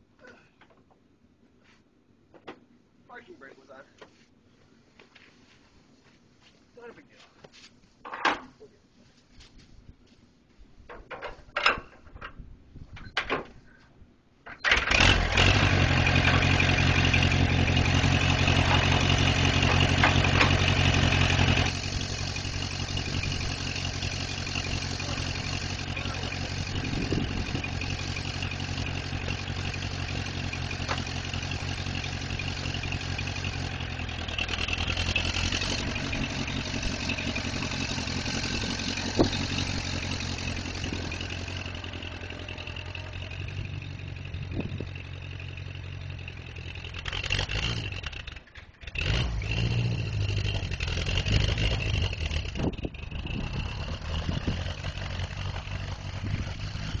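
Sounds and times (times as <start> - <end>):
tractor engine running: 14.3 - 57.0.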